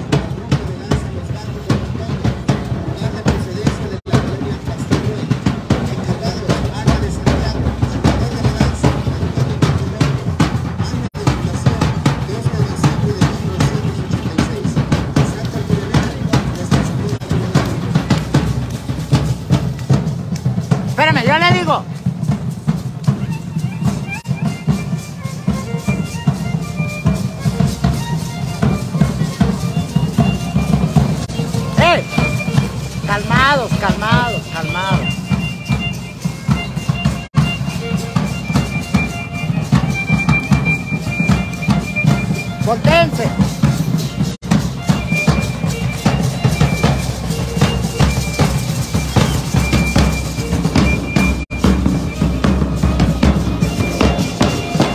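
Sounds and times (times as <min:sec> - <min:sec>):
drum beating dance rhythm: 0:00.0 - 0:54.9
high held melody notes: 0:21.0 - 0:54.9
high violin line: 0:21.0 - 0:54.9.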